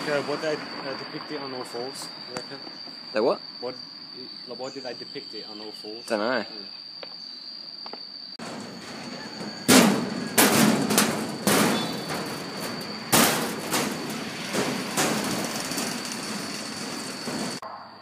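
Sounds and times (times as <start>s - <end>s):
high insect drone: 0.0s - 17.6s
loud thuds: 8.4s - 17.6s.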